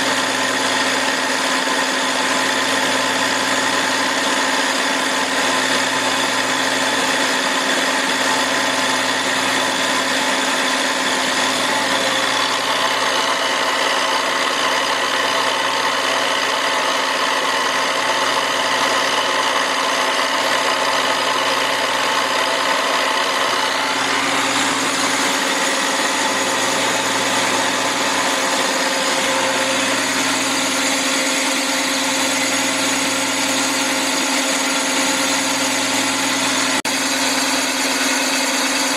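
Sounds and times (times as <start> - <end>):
machine hum: 0.0 - 38.9
high whining tones: 20.2 - 36.4.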